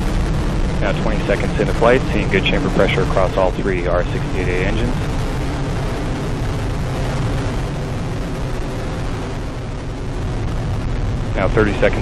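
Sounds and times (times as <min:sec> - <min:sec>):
rocket engines rumbling: 0:00.0 - 0:12.0.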